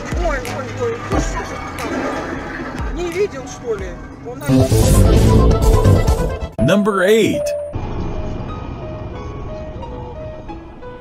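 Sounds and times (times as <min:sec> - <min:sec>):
car road and engine noise: 0:07.8 - 0:11.0.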